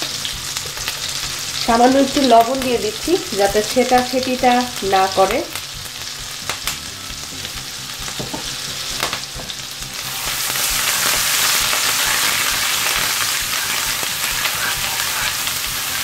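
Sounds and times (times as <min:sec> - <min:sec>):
paste sizzling in butter: 0:00.0 - 0:16.0
spatula scraping and tapping pan: 0:10.6 - 0:16.0.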